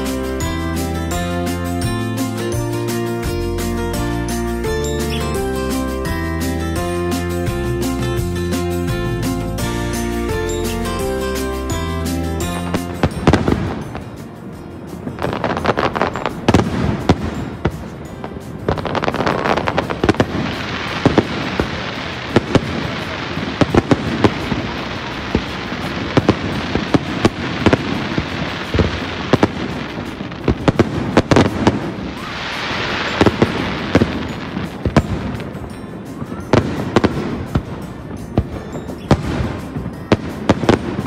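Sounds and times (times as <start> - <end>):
fireworks crackling and hissing: 0.0 - 41.0
fireworks bangs: 15.0 - 41.0.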